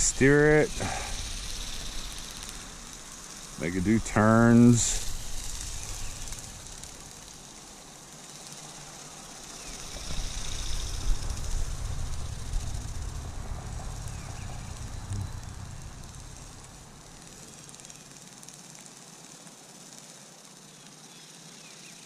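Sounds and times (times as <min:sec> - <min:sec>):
faint steady hiss: 0:00.0 - 0:22.0
wind buffeting microphone: 0:09.7 - 0:17.4.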